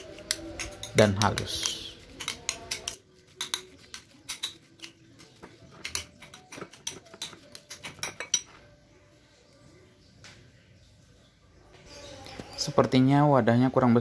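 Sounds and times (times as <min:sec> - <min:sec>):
metal spoon scraping a bowl: 0:00.0 - 0:08.8.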